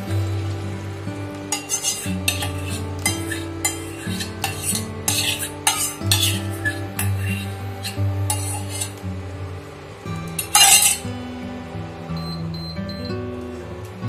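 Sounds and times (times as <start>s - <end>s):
background music: 0.0s - 14.0s
spatula scraping steel bowl: 1.5s - 9.0s, 10.4s - 11.1s.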